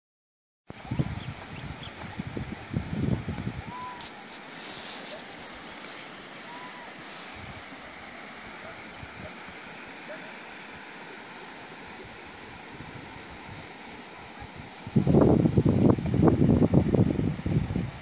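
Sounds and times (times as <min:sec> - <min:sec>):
outdoor hiss: 0:00.7 - 0:18.0
wind buffeting microphone: 0:00.8 - 0:04.1, 0:14.4 - 0:18.0
faint whistle-like calls: 0:03.6 - 0:07.3.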